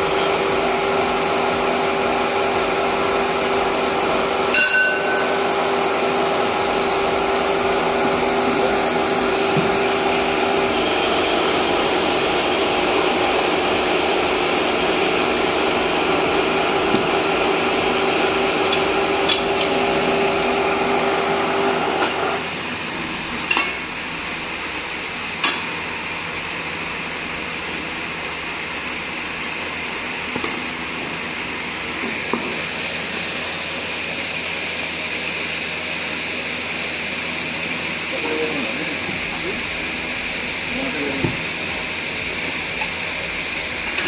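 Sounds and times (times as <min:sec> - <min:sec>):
pitched machine hum: 0:00.0 - 0:44.0
steady machinery noise: 0:00.0 - 0:44.0.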